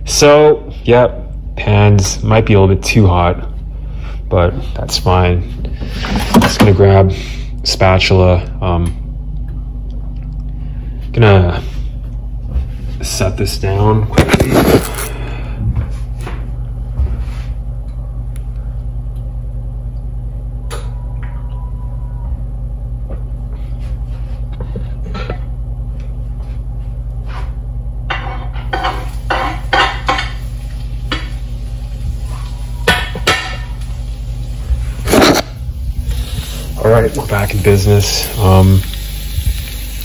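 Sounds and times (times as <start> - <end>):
steady low hum: 0.0 - 40.0
pan and utensils clattering: 28.1 - 31.4, 32.8 - 33.9.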